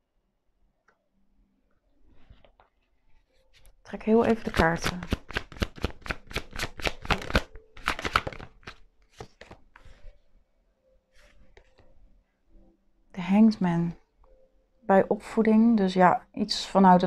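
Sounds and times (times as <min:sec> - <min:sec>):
cards being shuffled: 0:03.6 - 0:10.1.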